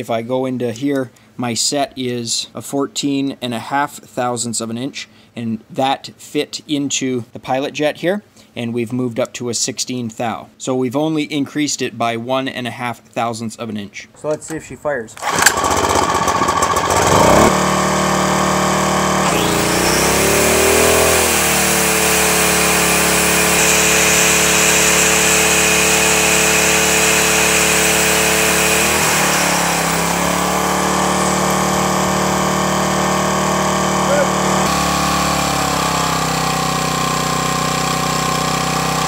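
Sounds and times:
angle grinder whine: 0:15.2 - 0:39.0
generator engine running: 0:15.2 - 0:39.0.

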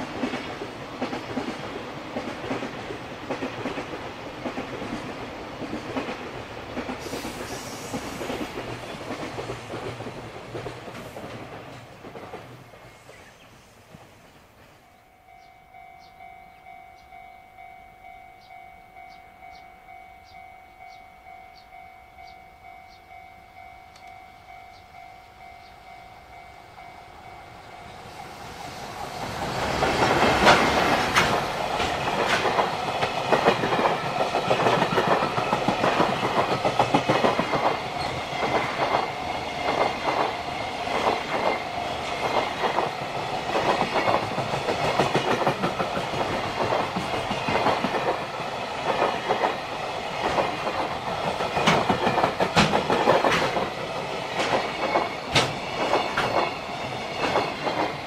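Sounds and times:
electric locomotive approaching: 0:00.0 - 0:58.0
wagons clattering over rail joints: 0:29.2 - 0:41.6, 0:50.2 - 0:58.0.

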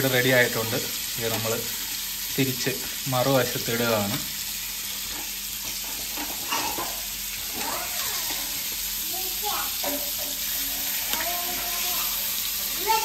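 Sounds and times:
fish sizzling in hot oil: 0:00.0 - 0:13.0
metal spatula scraping: 0:05.0 - 0:08.8, 0:09.8 - 0:12.8.

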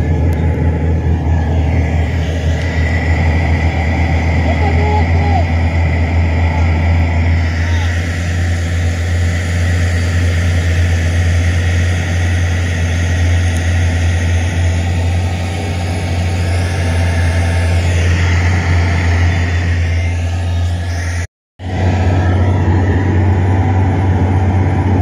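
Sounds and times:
bulldozer diesel engine droning: 0:00.0 - 0:25.0.

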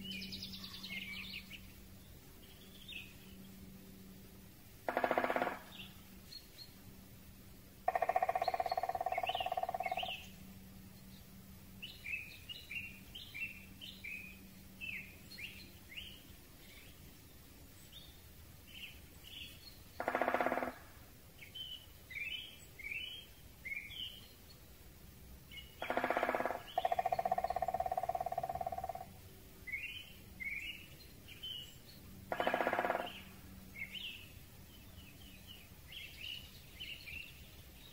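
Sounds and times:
small songbirds chirping: 0:00.0 - 0:37.9
woodpecker drumming on wood: 0:04.8 - 0:05.8, 0:07.9 - 0:10.2, 0:20.0 - 0:20.8, 0:25.8 - 0:29.1, 0:32.3 - 0:33.3.

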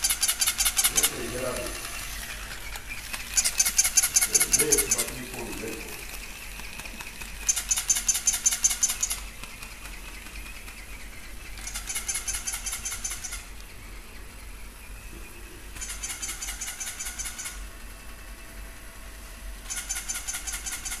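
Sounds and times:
toy high-pitched trilling: 0:00.0 - 0:13.6, 0:15.7 - 0:17.8, 0:19.6 - 0:21.0.

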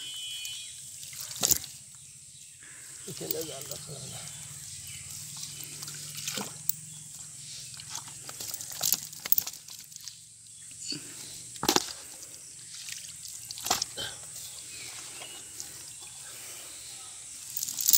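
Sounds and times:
fish slapping and splashing: 0:12.7 - 0:13.9.

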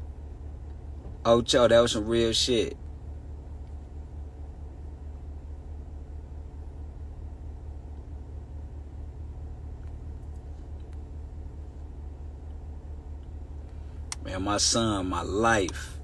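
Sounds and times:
low rumble inside vehicle cabin: 0:00.0 - 0:16.0.

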